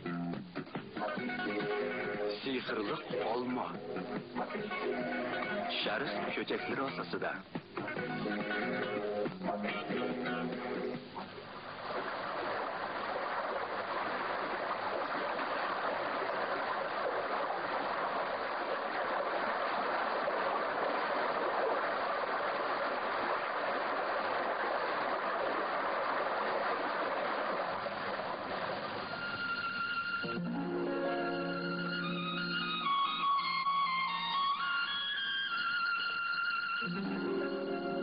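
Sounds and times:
music: 0.0s - 11.4s, 28.8s - 38.0s
running water rushing: 0.8s - 30.5s.

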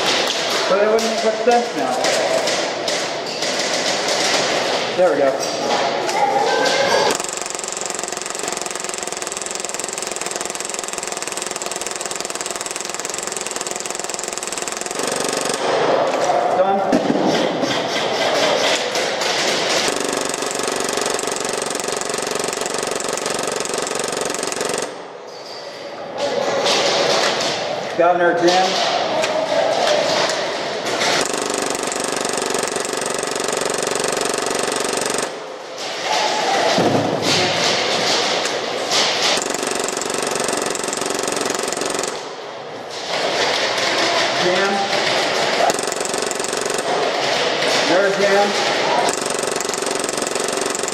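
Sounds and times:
airsoft pistol automatic fire: 7.1s - 16.0s, 18.3s - 25.0s, 30.9s - 35.5s, 38.9s - 42.4s, 43.1s - 50.9s.

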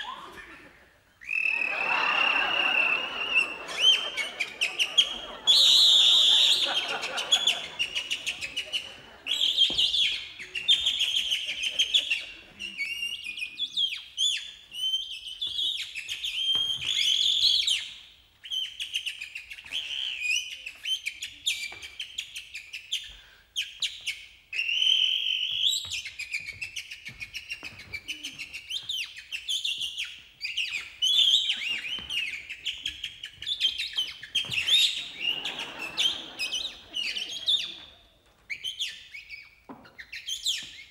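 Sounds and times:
people imitating birdsong: 0.0s - 9.4s, 34.6s - 37.8s.

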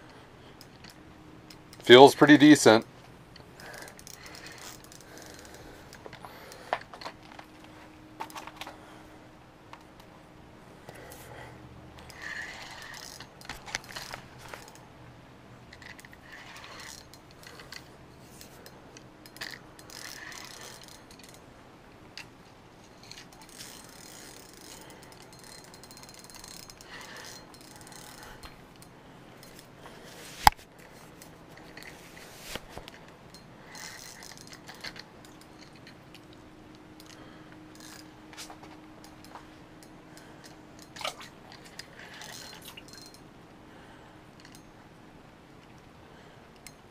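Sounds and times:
fishing reel gears whirring and clicking: 3.3s - 7.6s, 12.0s - 14.8s, 15.7s - 21.4s, 22.9s - 29.7s, 32.9s - 38.2s, 39.0s - 43.3s, 44.4s - 44.7s.

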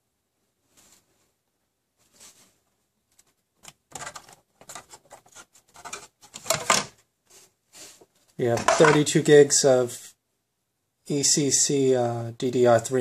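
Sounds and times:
plastic clicking and scraping on metal: 3.1s - 6.9s.

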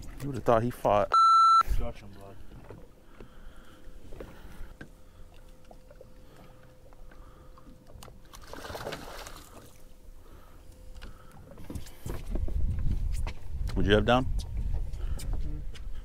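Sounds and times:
faint steady hum: 0.1s - 12.8s
water sloshing against boat hull: 2.3s - 10.0s
water splash: 8.3s - 9.6s.

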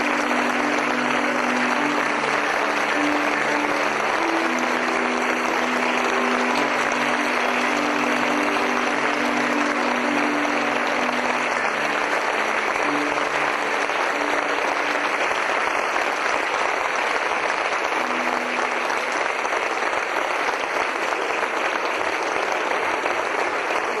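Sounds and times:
faint musical notes: 0.0s - 19.9s
crowd applause: 0.0s - 24.0s.

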